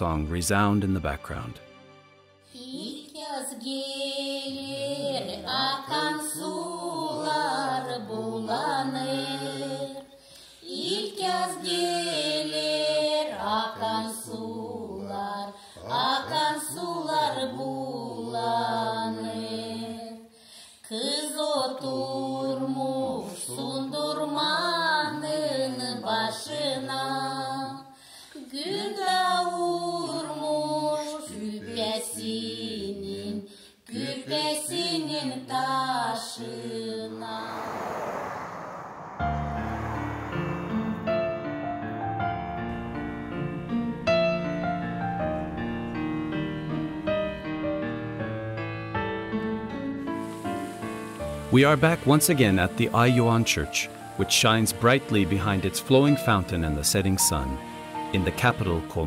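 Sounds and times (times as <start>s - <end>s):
person singing folk song: 2.6s - 20.2s, 20.8s - 37.3s, 51.5s - 59.0s.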